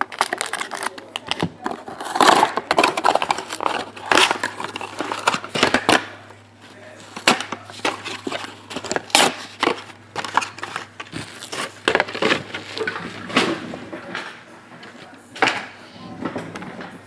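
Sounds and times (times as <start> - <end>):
packaging crinkling: 0.0 - 13.3.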